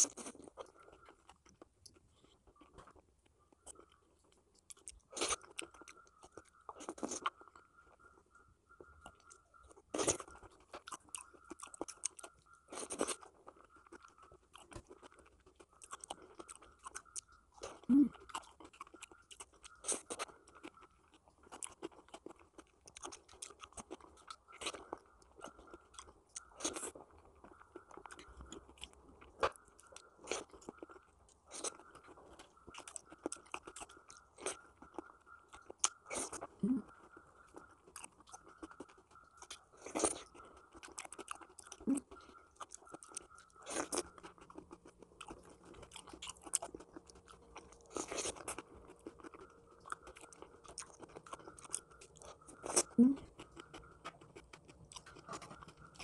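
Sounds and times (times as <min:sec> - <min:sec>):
person chewing wetly: 0:00.0 - 0:56.0.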